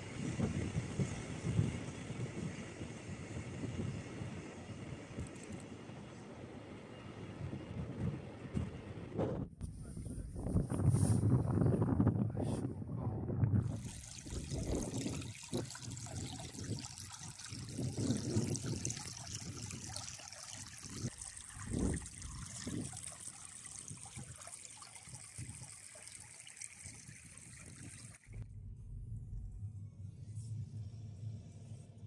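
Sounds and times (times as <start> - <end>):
stream trickling over stones: 13.6 - 28.4
low rumbles: 28.2 - 32.0.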